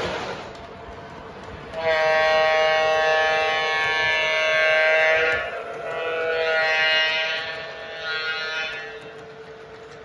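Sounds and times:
faint train running on track: 0:00.0 - 0:10.0
model train horn chord: 0:01.7 - 0:09.1.

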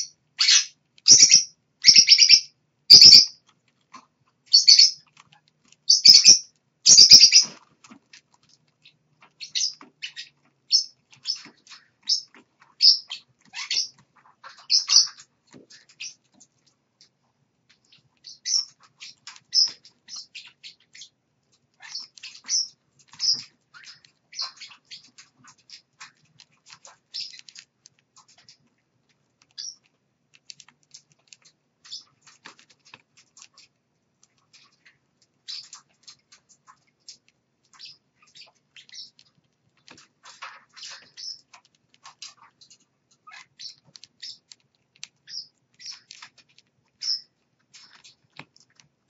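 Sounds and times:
parrots clicking and chirping: 0:00.0 - 0:49.0
bird pecking at seed dish: 0:17.7 - 0:49.0.

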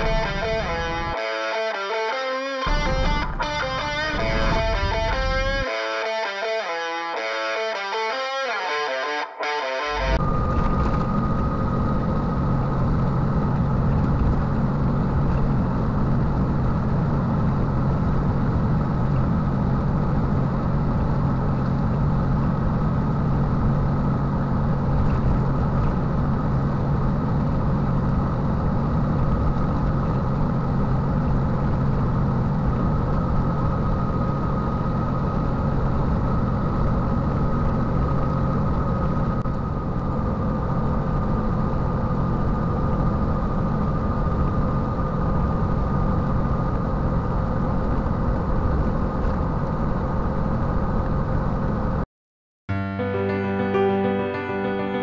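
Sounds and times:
diesel truck engine droning: 0:00.0 - 0:16.8
high whine: 0:00.0 - 0:16.8, 0:52.7 - 0:55.0
road noise: 0:00.0 - 0:51.9.

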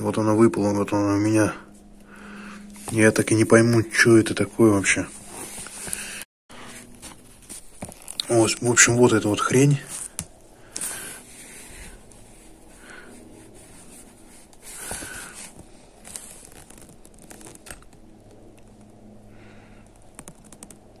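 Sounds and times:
low steady hum: 0:00.0 - 0:21.0
handling rustling: 0:02.6 - 0:19.0.

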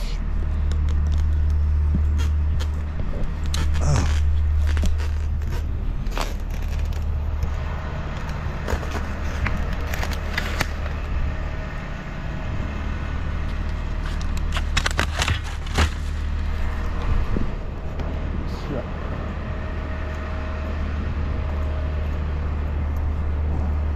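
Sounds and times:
traffic rumble: 0:00.0 - 0:23.9
clicks and crackles: 0:00.3 - 0:11.1, 0:13.4 - 0:17.1
foam takeout box handled: 0:08.6 - 0:10.9.

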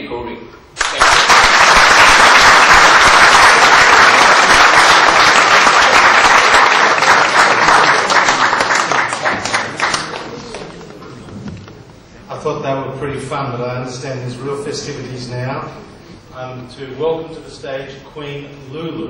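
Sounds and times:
audience applauding: 0:00.8 - 0:10.9.

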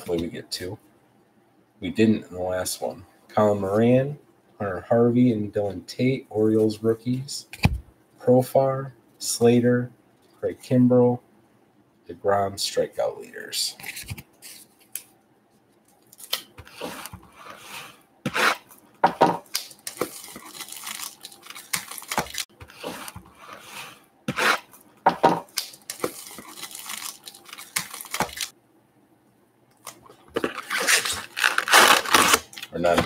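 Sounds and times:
wrapper tearing and crinkling: 0:19.5 - 0:22.5, 0:25.5 - 0:28.5, 0:30.4 - 0:32.8.

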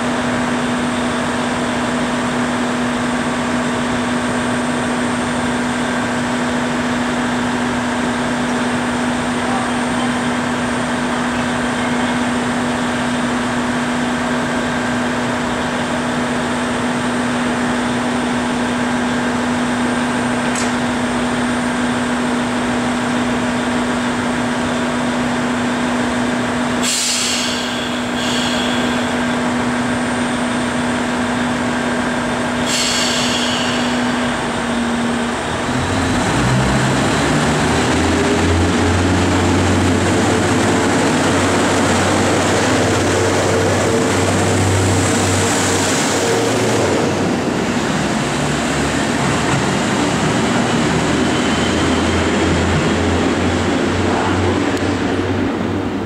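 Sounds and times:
diesel railcar engine: 0:00.0 - 0:56.0
air hisses: 0:26.8 - 0:29.2, 0:32.6 - 0:34.3.

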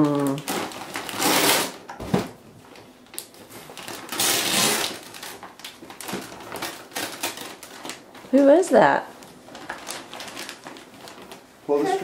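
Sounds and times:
paper crinkling and rustling: 0:00.0 - 0:12.0.

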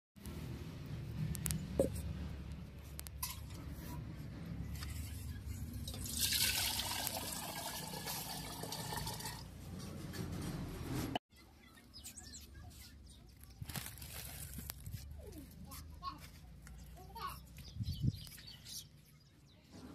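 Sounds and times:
liquid pouring into metal pot: 0:05.8 - 0:09.5.

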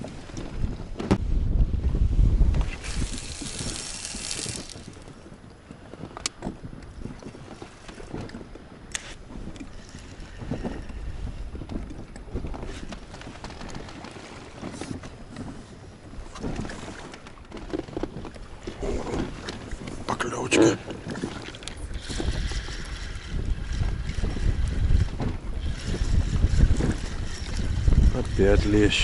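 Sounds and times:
wind on microphone: 0:00.0 - 0:29.0
water lapping against boat hull: 0:02.5 - 0:29.0.

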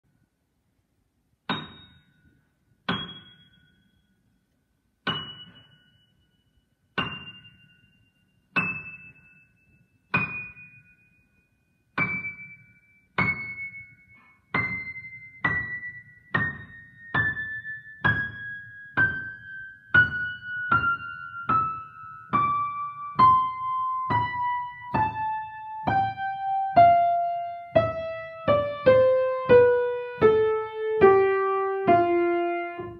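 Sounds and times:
descending piano notes: 0:12.0 - 0:32.9.

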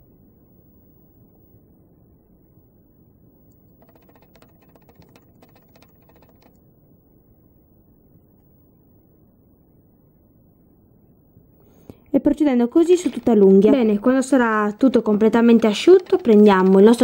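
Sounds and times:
rapid faint clicks: 0:03.5 - 0:06.6, 0:12.8 - 0:17.0
low background hiss: 0:04.8 - 0:17.0.

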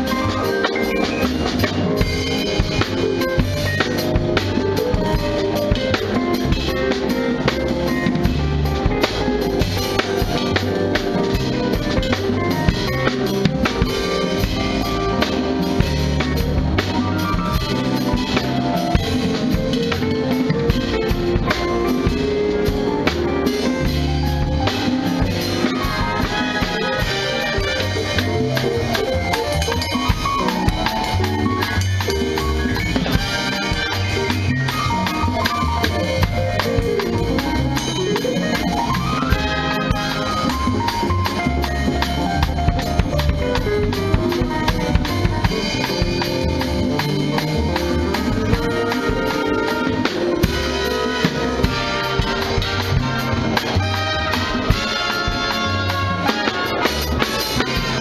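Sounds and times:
bass drum: 0:00.0 - 0:58.0
cymbals: 0:00.0 - 0:58.0
jazz band playing: 0:00.0 - 0:58.0
snare drum: 0:00.0 - 0:58.0.

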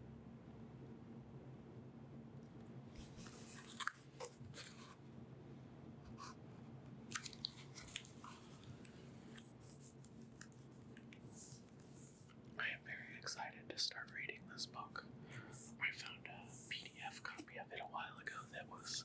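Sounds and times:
low steady hum: 0:00.0 - 0:19.0
book closing: 0:03.0 - 0:05.0, 0:07.1 - 0:08.6
book pages turning: 0:03.0 - 0:05.0, 0:07.1 - 0:12.3.

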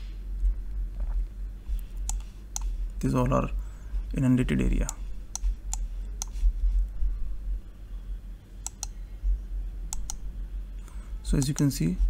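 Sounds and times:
steady low hum: 0:00.0 - 0:12.0
computer mouse clicks: 0:02.0 - 0:02.7, 0:04.8 - 0:06.4, 0:08.6 - 0:09.0, 0:09.9 - 0:10.2, 0:11.3 - 0:11.7.

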